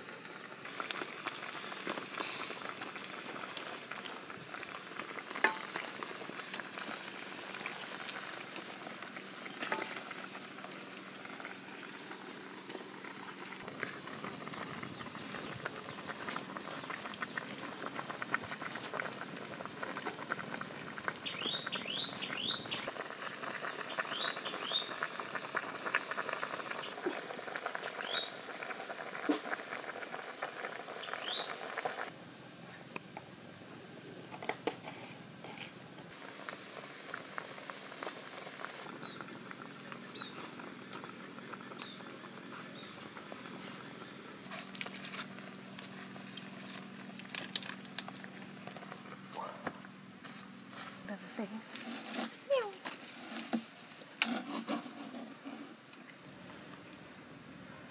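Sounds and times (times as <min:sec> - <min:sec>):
soup boiling with pops: 0:00.0 - 0:32.2, 0:34.3 - 0:50.7.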